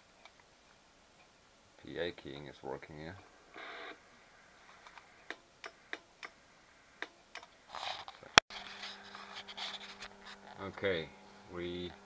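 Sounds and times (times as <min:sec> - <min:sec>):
transformer mains hum: 0:08.3 - 0:12.0.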